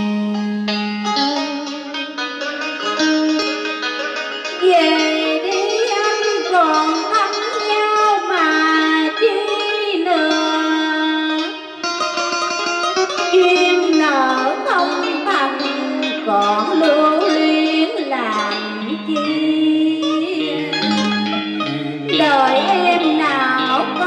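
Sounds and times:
plucked-string karaoke music: 0:00.0 - 0:24.0.

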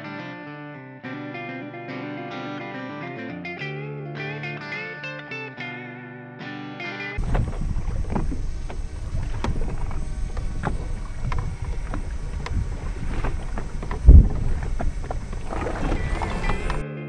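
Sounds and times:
heavy low thump: 0:07.2 - 0:16.8
waves slapping boat hull: 0:07.2 - 0:16.8
wind buffeting microphone: 0:07.2 - 0:16.8.

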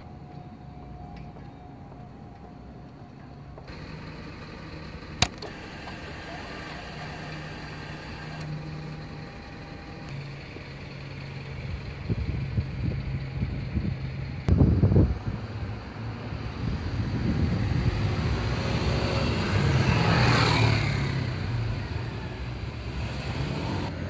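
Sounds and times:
motorcycle engine starting: 0:03.7 - 0:12.3
high priming whine: 0:05.2 - 0:10.2.

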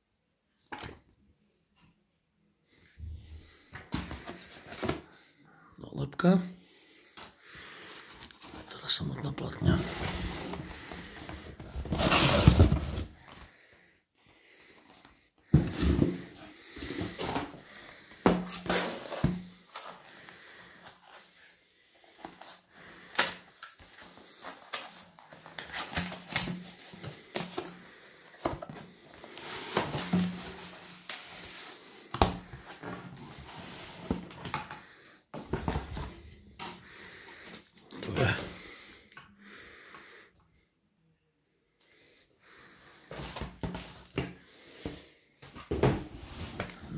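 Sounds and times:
cardboard mailer rustling and scraping: 0:09.7 - 0:13.1.

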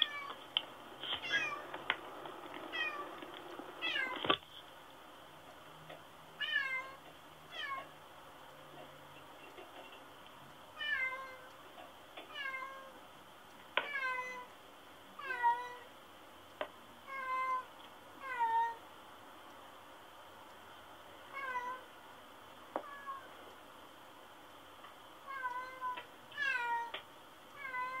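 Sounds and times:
cat meowing: 0:01.2 - 0:01.6, 0:25.3 - 0:27.0, 0:27.6 - 0:28.0.

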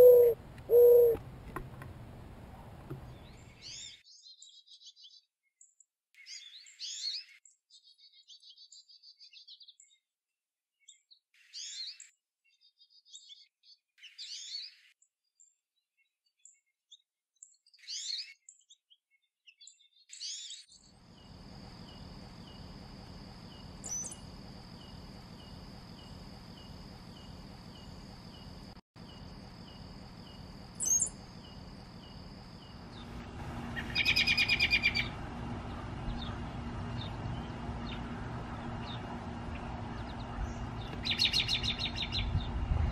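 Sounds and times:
goldfinch twittering calls: 0:00.0 - 0:01.2, 0:29.6 - 0:42.5
high bird chirps: 0:00.0 - 0:01.2, 0:29.1 - 0:42.3.

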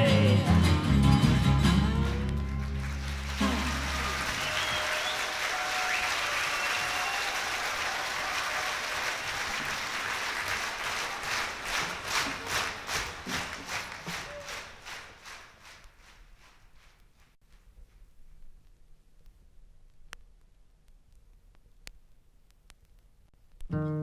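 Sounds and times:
audience applauding: 0:02.1 - 0:17.0.

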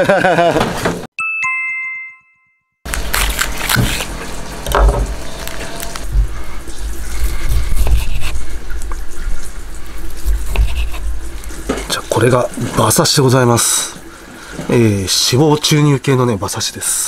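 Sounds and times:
knife slicing raw meat: 0:02.9 - 0:04.2.

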